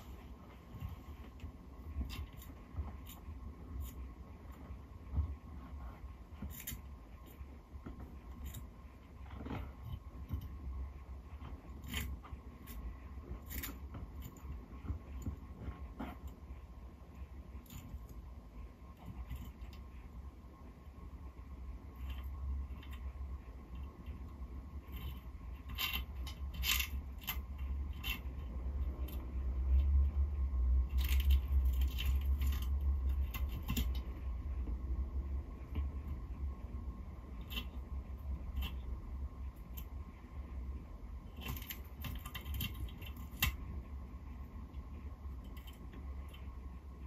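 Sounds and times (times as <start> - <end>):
low steady hum: 0.0 - 47.0
tortoise crunching cuttlebone: 22.0 - 34.4.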